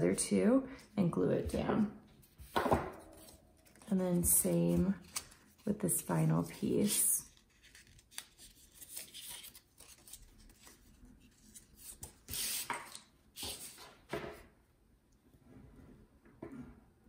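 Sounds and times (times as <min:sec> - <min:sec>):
paper rustling and rubbing: 0:03.1 - 0:13.9.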